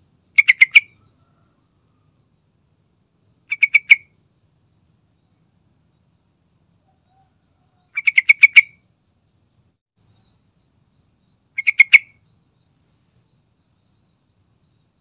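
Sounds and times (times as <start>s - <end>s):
bulbul chattering calls: 0.3s - 1.5s, 3.5s - 4.1s, 7.1s - 8.8s, 11.6s - 12.4s.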